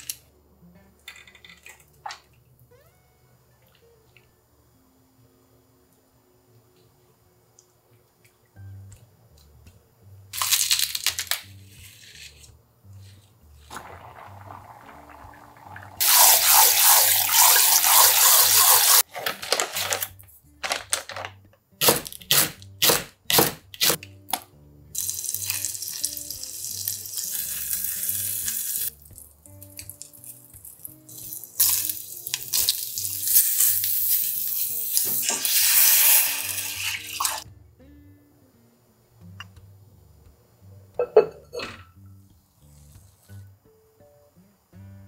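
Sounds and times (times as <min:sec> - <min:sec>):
soft background music: 0:00.0 - 0:45.0
tap water running into a cup: 0:13.7 - 0:19.0, 0:31.1 - 0:37.4.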